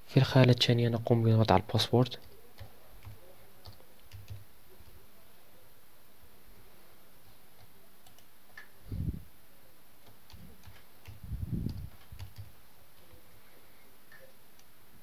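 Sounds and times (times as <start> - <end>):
soft low thumps: 11.2 - 12.2.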